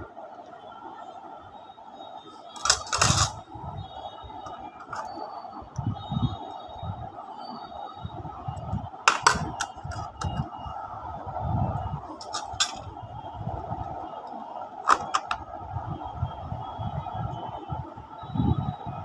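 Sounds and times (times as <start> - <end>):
steady background hum: 0.0 - 19.0
metal and plastic clicks: 2.6 - 3.4, 4.8 - 5.2, 9.1 - 10.4, 12.2 - 12.9, 14.9 - 15.4.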